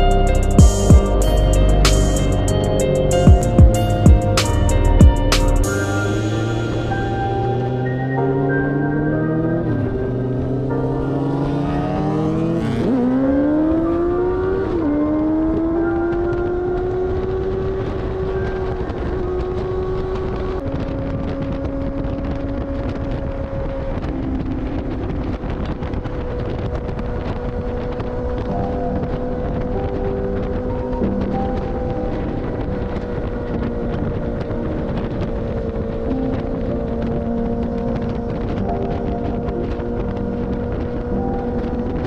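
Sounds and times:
motorcycle engine accelerating: 0.0s - 42.0s
wind on microphone: 9.3s - 42.0s.

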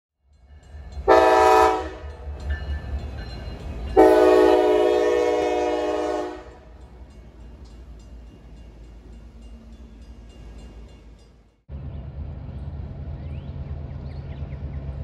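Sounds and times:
passing train rumble: 0.2s - 15.0s
locomotive air horn blasts: 1.0s - 2.1s, 4.0s - 6.7s.

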